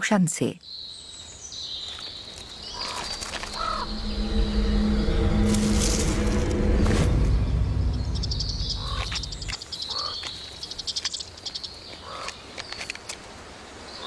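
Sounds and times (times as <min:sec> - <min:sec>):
animal chirping and trilling: 0:02.6 - 0:05.2, 0:08.0 - 0:12.4
low hum: 0:02.9 - 0:09.6.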